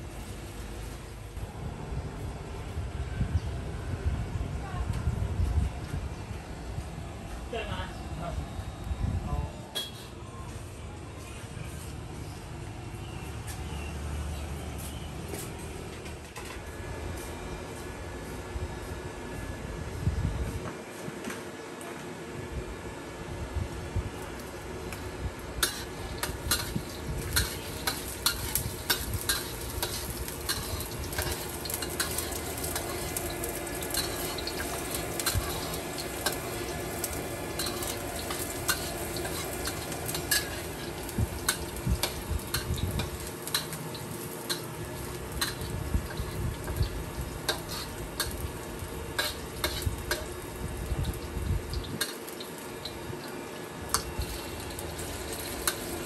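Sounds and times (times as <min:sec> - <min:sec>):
noodles sizzling in a wok: 0:23.9 - 0:56.0
metal spatula scraping a wok: 0:25.6 - 0:43.8, 0:47.5 - 0:48.4, 0:49.1 - 0:50.3.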